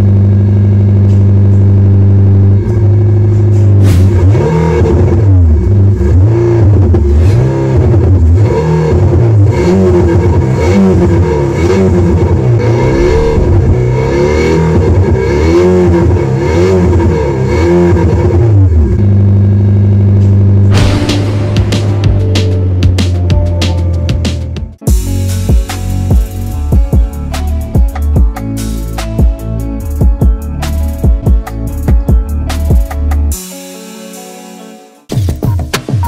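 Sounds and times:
synthesized engine revs: 0.0s - 23.4s.

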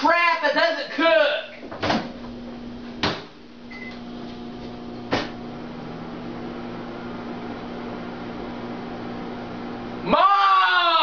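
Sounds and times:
microwave oven humming: 0.0s - 11.0s
sharp knock: 3.0s - 3.4s, 5.1s - 5.3s
short beep: 3.7s - 4.0s.

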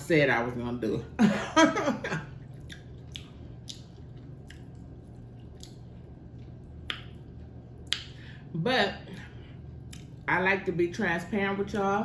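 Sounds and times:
close chewing and lip-smacking: 2.4s - 8.2s, 9.7s - 10.3s.

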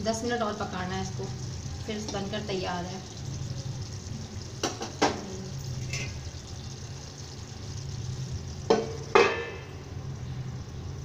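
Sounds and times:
steady low hum: 0.0s - 11.0s
metal spoon scraping a pan: 5.8s - 6.2s
metal plate clanking on a pan: 8.7s - 9.6s.

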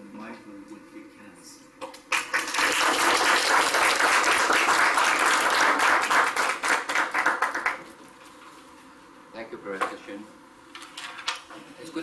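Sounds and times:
audience applause: 2.1s - 7.9s.

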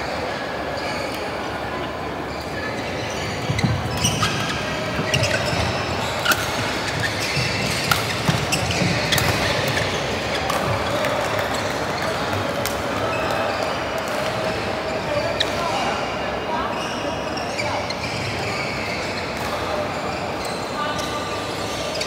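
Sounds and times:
indoor hall noise: 0.0s - 22.0s
racket striking shuttlecock: 7.7s - 9.8s.

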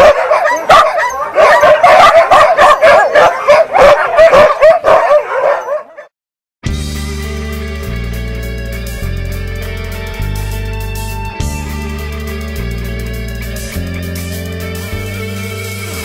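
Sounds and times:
dogs barking and howling: 0.0s - 6.1s
guitar music: 6.7s - 16.0s.

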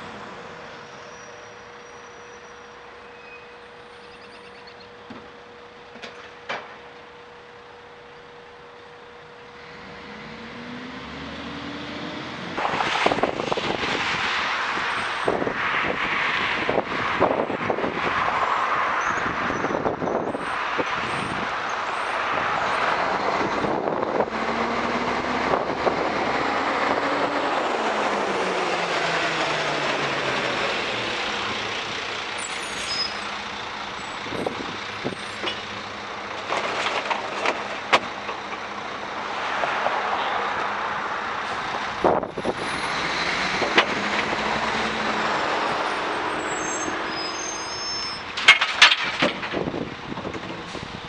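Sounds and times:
truck engine running: 22.3s - 39.4s.

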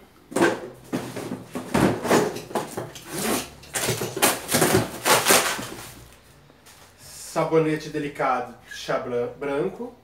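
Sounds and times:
rustling cardboard and packaging: 0.3s - 7.0s.

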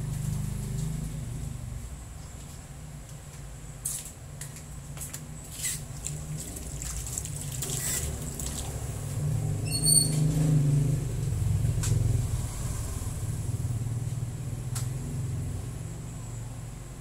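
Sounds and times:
motor vehicle passing: 5.6s - 16.9s.

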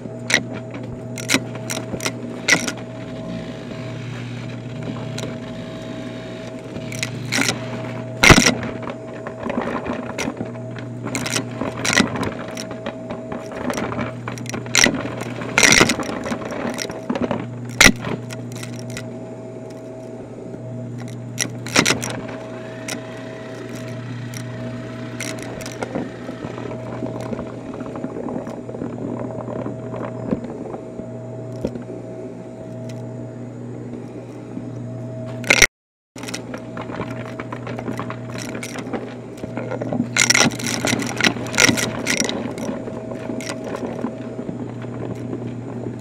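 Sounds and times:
vacuum cleaner running: 18.5s - 27.9s.

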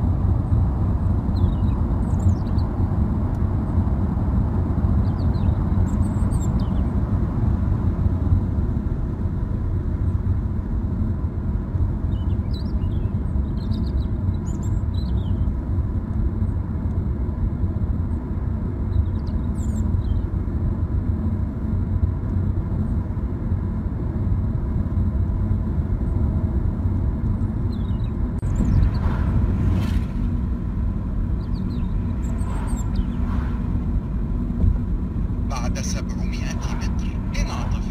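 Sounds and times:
car driving interior rumble: 19.5s - 37.9s.

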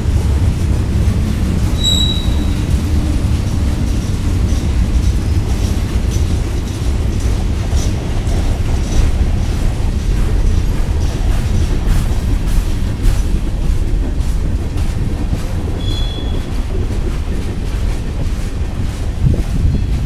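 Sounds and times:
train wheels rumbling on rail: 0.0s - 20.0s
wheel squealing against rail: 1.5s - 9.6s, 15.6s - 16.9s.

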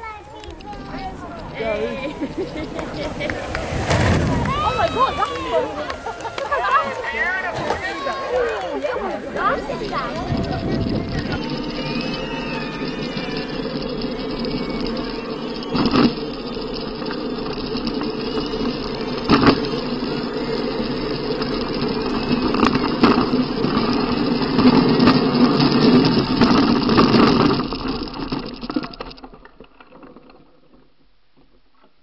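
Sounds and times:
cart wheels rumbling and rattling: 0.0s - 31.6s
cart crashing: 3.6s - 5.3s.

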